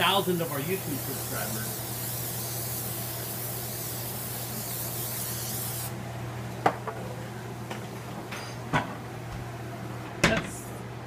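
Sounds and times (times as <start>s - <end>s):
aerosol spray hissing: 0.0s - 5.9s.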